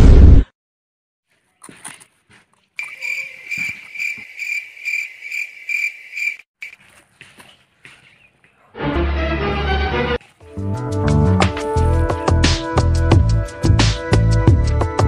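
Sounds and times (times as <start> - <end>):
cricket chirping: 2.8 - 6.8.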